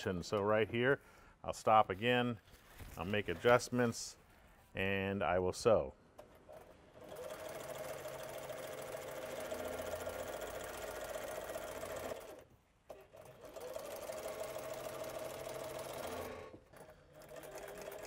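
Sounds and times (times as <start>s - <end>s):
sewing machine stitching: 6.2s - 18.0s.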